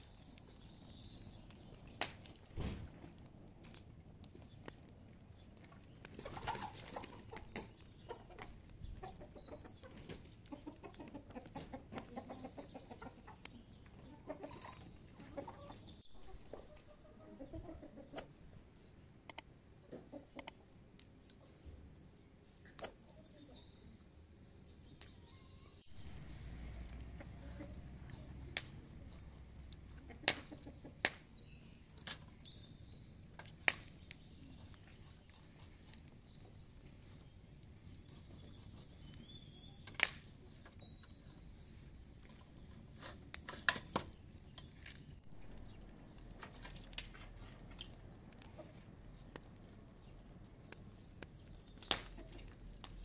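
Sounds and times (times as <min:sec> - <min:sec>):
bird chirps: 0:07.6 - 0:10.6, 0:21.3 - 0:29.7, 0:33.9 - 0:41.8, 0:50.0 - 0:53.0.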